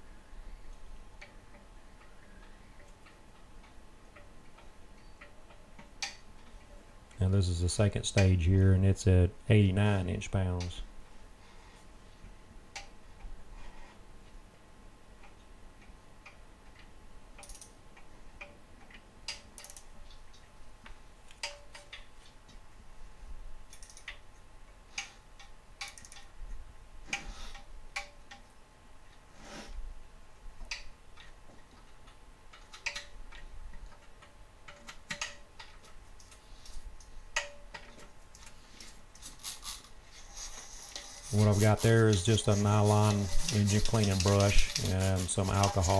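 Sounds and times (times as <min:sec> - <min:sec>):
torque wrench ratcheting clicks: 0:17.4 - 0:17.7, 0:23.7 - 0:24.2.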